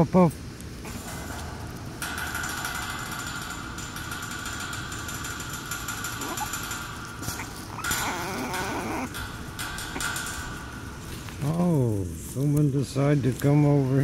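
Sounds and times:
background hiss and hum: 0.0s - 14.0s
puppy whimpering: 7.4s - 9.1s.

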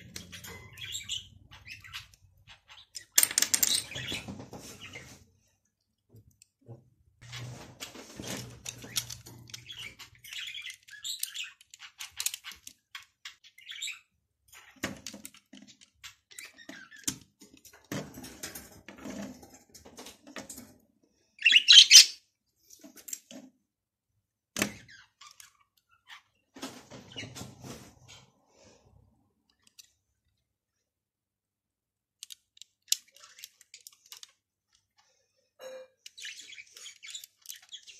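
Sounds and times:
plastic bricks clicking together: 32.2s - 34.4s.

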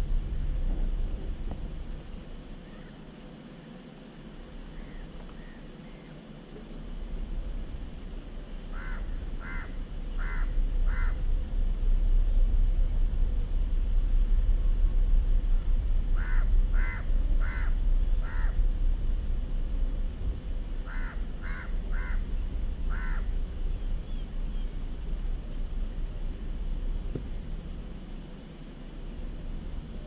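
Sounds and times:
steady low rumble: 0.0s - 30.0s
crow cawing: 8.7s - 11.2s, 16.1s - 18.6s, 20.8s - 23.4s.

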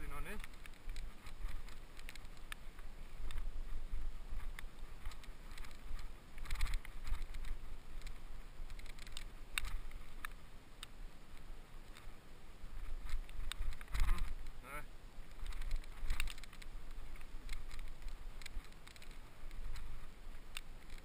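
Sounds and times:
wind on microphone: 0.0s - 10.3s, 12.6s - 14.6s
bike clicks and rattles: 0.0s - 14.6s, 15.2s - 21.0s
bike tyres rumbling on dirt: 11.2s - 14.5s.

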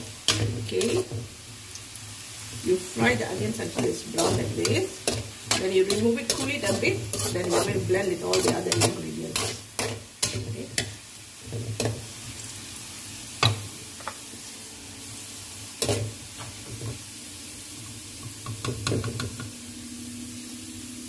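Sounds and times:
metal spatula scraping a pan: 0.0s - 1.2s, 3.0s - 12.1s, 15.8s - 16.8s
onions sizzling in hot oil: 0.0s - 21.0s.

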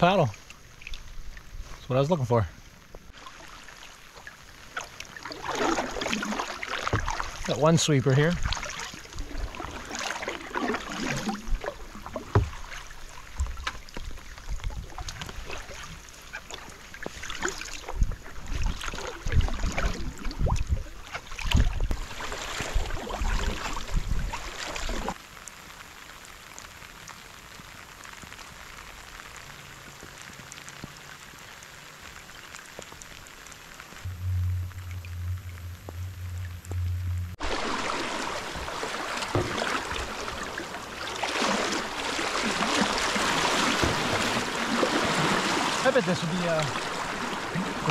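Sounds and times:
heavy rain on river: 0.0s - 47.9s
kayak paddle splashing: 2.6s - 25.3s, 30.1s - 47.9s
paddle knocks: 6.8s - 7.4s, 12.0s - 14.1s, 38.7s - 40.6s.

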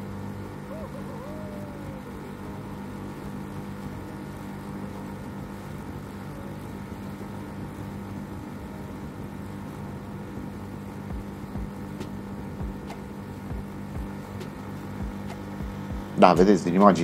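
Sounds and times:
boat motor drone: 0.0s - 17.0s
wavering whistle: 0.6s - 2.7s.

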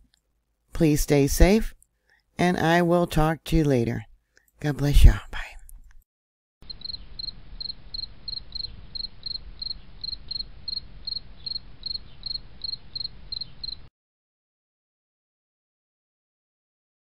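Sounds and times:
insect chirping: 6.6s - 13.9s.

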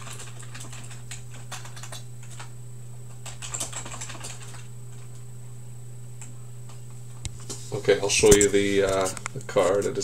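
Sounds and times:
keyboard typing clicks: 0.0s - 2.5s
low electrical hum: 0.0s - 10.0s.

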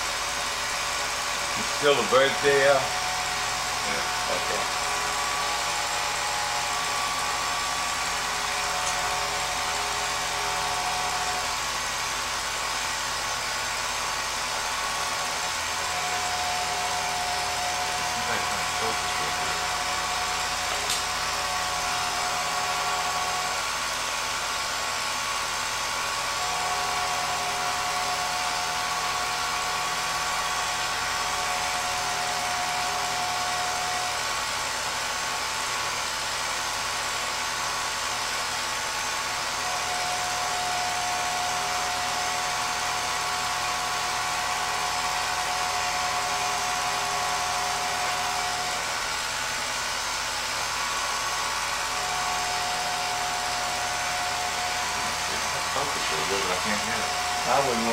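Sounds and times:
high even whine: 0.0s - 34.5s, 39.2s - 57.9s
film projector motor whir: 0.0s - 57.9s.

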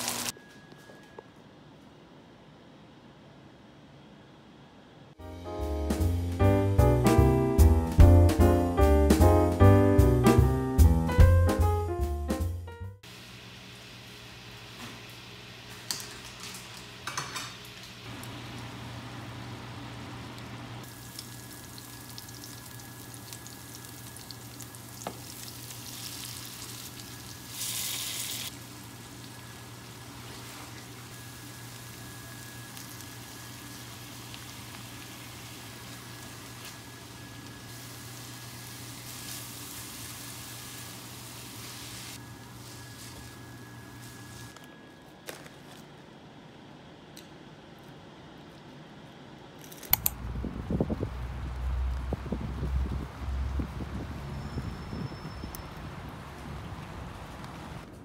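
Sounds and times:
vegetables sizzling in frying pan: 0.0s - 0.3s, 20.9s - 43.4s.

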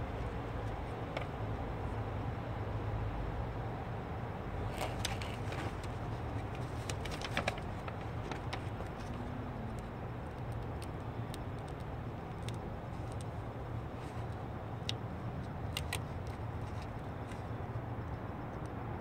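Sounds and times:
backing paper crackling: 4.6s - 14.4s.

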